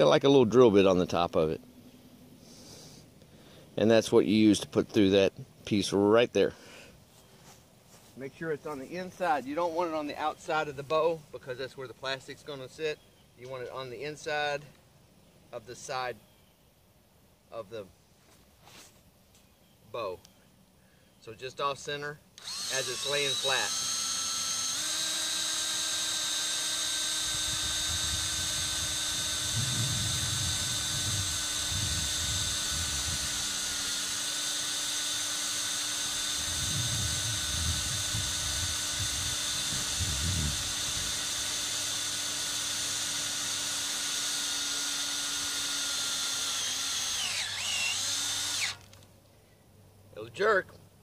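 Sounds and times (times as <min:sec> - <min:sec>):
cordless drill driving screw into steel: 0:22.4 - 0:49.0.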